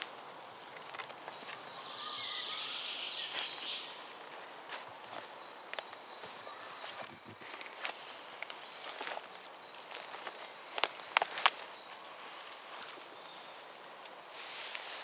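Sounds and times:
high bird trill: 0.0s - 4.1s, 4.9s - 7.5s
dry twigs crackling: 0.0s - 15.0s
sticks snapping: 7.6s - 11.7s.

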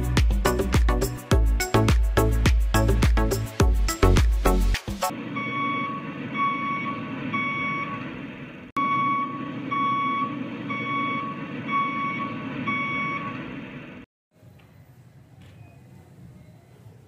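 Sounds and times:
engine running: 4.4s - 14.1s
vehicle reversing alarm beeping: 5.2s - 16.7s.

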